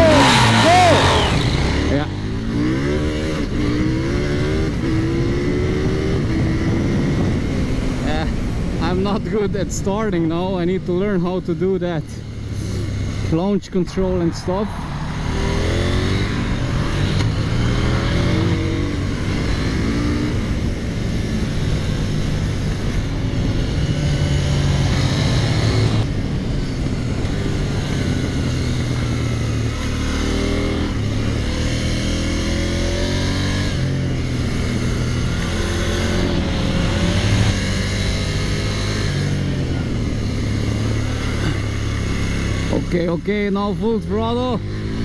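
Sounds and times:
motorcycle engine accelerating hard: 0:00.0 - 0:45.0.

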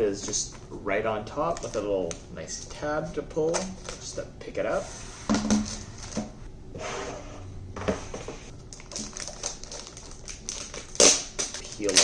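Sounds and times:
packaging rustling: 0:03.5 - 0:04.2, 0:08.6 - 0:12.0.

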